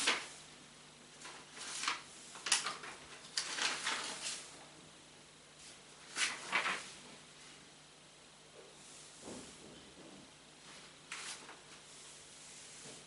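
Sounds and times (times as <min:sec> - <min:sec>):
faint room hum: 0:00.0 - 0:13.0
rustles and scrapes: 0:10.6 - 0:13.0.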